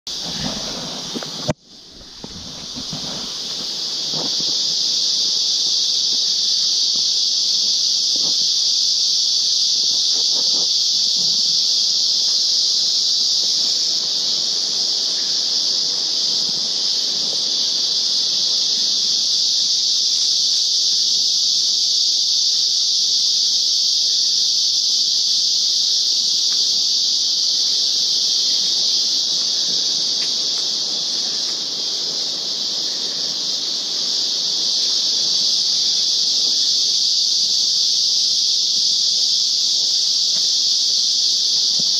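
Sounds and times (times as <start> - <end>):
high-pitched insect chorus: 0.0 - 41.9
soft footsteps on trail: 0.1 - 8.4, 26.2 - 36.6.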